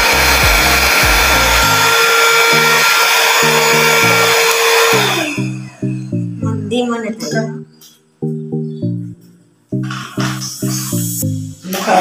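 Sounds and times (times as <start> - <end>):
handheld vacuum cleaner running: 0.0 - 5.9.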